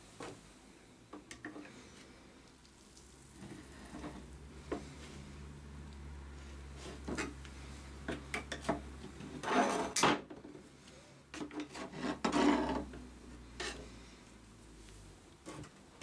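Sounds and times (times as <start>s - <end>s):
metal files scraping in plastic tray: 9.4s - 10.0s, 11.4s - 12.9s.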